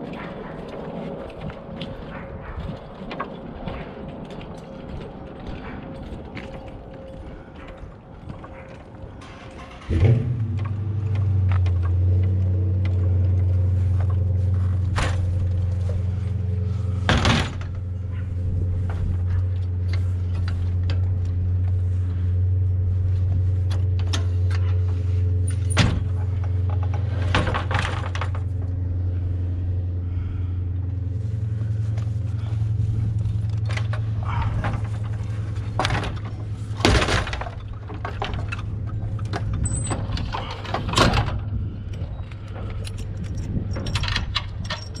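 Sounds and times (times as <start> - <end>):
steady low hum: 0.0 - 45.0
ladder clanking against roof rack: 33.4 - 45.0.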